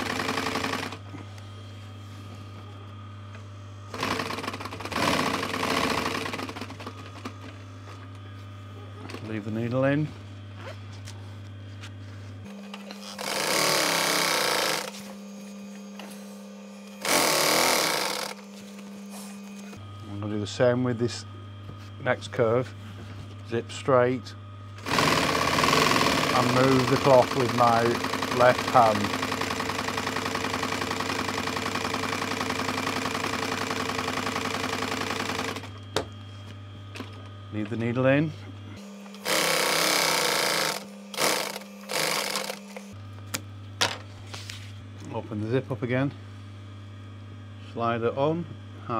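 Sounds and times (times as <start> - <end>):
sewing machine stitching: 0.0 - 1.0, 3.9 - 7.0, 13.0 - 15.0, 17.0 - 18.4, 24.8 - 35.7, 39.2 - 42.9
sewing machine motor humming: 0.0 - 1.4, 3.9 - 7.6, 12.4 - 20.2, 24.8 - 35.8, 38.8 - 43.0.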